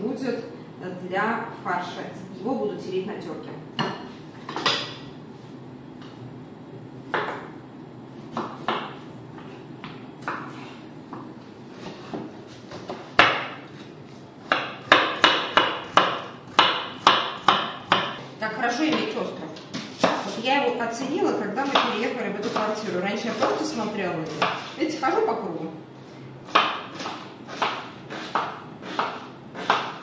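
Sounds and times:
knife chopping on wooden board: 8.3 - 9.0, 11.1 - 18.2, 21.6 - 24.8, 26.5 - 30.0.

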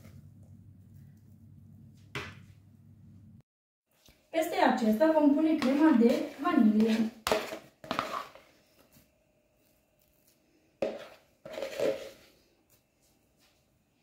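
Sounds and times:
utensil scraping cream: 5.6 - 8.5, 10.8 - 12.3.

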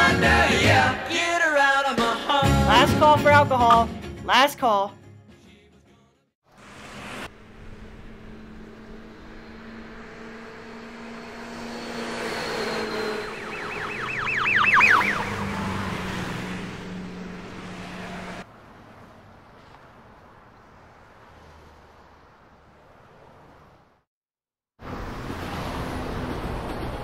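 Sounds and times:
vehicle passing: 6.5 - 24.0, 24.8 - 27.0
street traffic hum: 6.5 - 24.1, 24.8 - 27.0
fast warbling electronic siren wail: 8.4 - 18.4.

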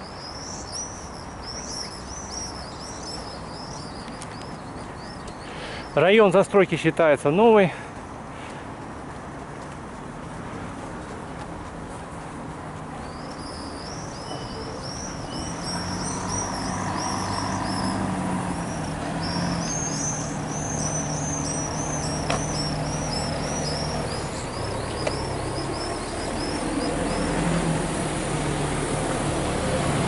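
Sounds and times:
small bird singing: 0.0 - 6.5, 13.0 - 27.4
road traffic hum: 0.0 - 30.0.

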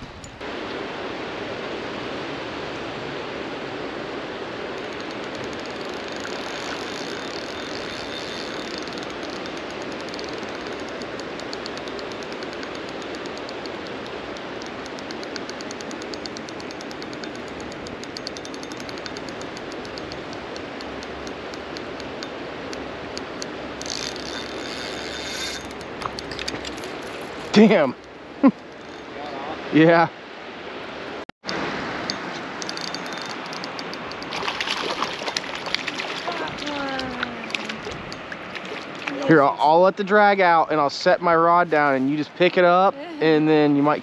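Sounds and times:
river water rushing: 0.4 - 44.0
fishing reel clicking: 4.8 - 26.5, 32.6 - 34.4.

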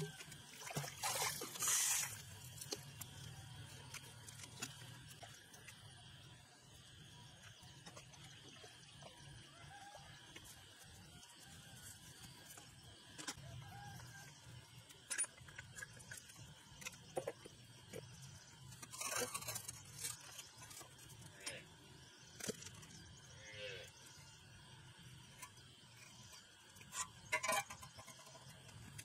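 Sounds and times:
metallic rattle and scrape: 18.6 - 21.3, 25.4 - 29.0.

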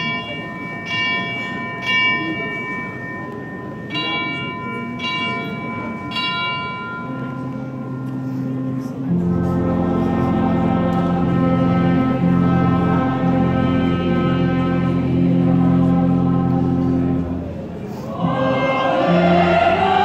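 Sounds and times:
church bells ringing: 0.0 - 17.6
wind band sustained chords: 6.9 - 20.0.

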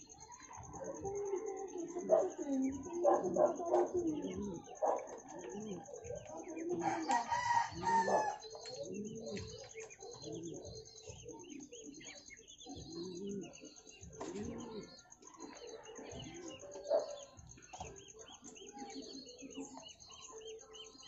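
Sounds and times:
pigeons cooing: 0.0 - 21.0
rooster crowing: 6.8 - 8.4.

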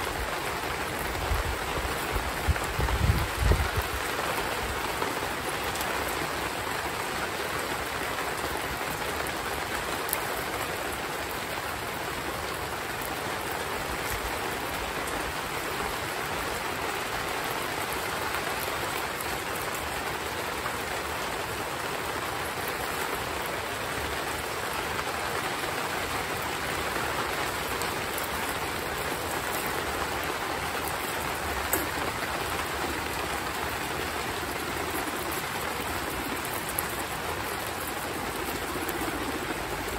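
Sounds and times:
heavy rain falling: 0.0 - 39.9.

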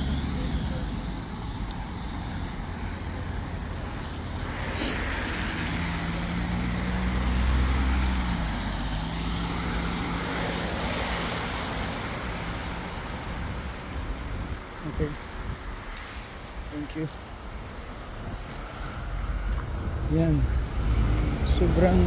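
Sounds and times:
low engine hum: 0.0 - 22.0
tyre hiss on wet road: 4.5 - 6.0.

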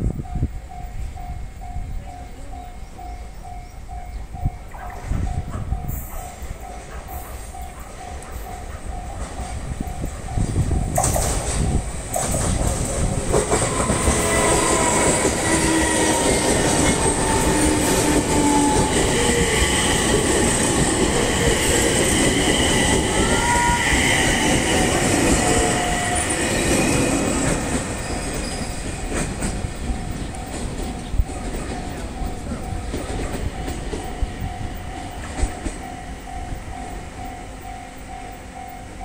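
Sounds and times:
train wheels rumbling on rails: 0.0 - 39.0
wheel squeals: 21.6 - 29.3.

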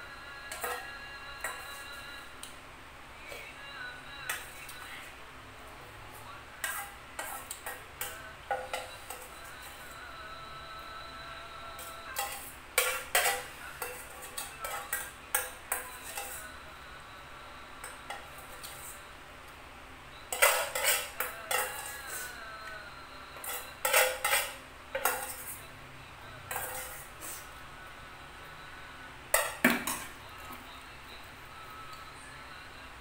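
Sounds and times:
spoon clinking against a bowl: 0.4 - 2.1, 6.6 - 10.0, 11.8 - 16.5, 20.3 - 22.4, 23.4 - 25.7, 26.5 - 27.3, 29.3 - 30.5.

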